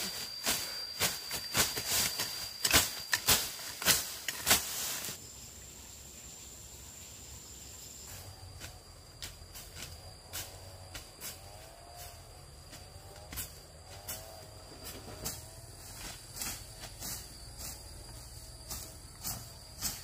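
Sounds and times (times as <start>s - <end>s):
thin steady high tone: 0.0s - 3.7s.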